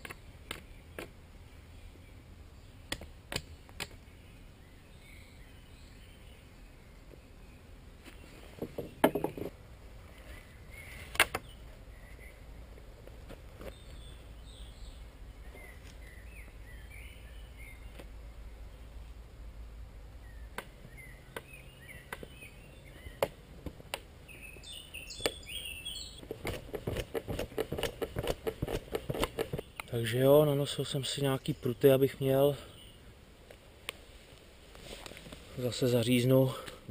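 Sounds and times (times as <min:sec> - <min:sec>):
birds chirping: 0:00.0 - 0:19.1, 0:20.1 - 0:36.9
wooden sticks knocking: 0:08.6 - 0:09.6.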